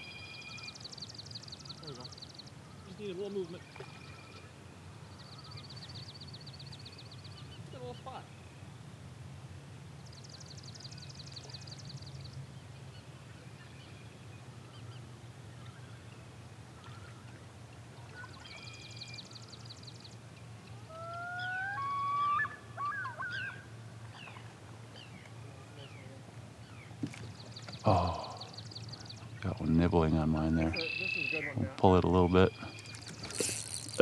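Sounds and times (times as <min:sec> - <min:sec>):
songbird high trill: 0:00.0 - 0:03.0, 0:30.5 - 0:31.6.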